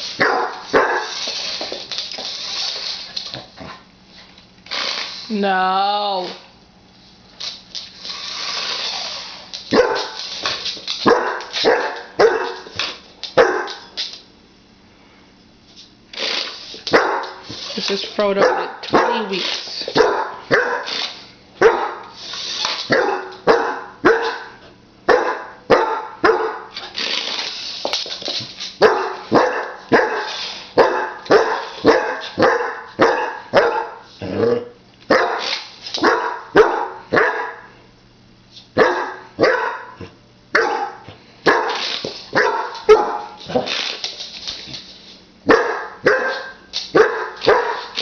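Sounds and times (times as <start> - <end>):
puppy barking: 0.2 - 1.2, 9.7 - 10.2, 11.0 - 12.7, 13.4 - 13.9, 16.9 - 17.4, 18.4 - 19.4, 20.0 - 20.9, 21.6 - 22.1, 22.9 - 26.7, 28.8 - 34.1, 35.1 - 37.7, 38.8 - 43.7, 45.5 - 48.0.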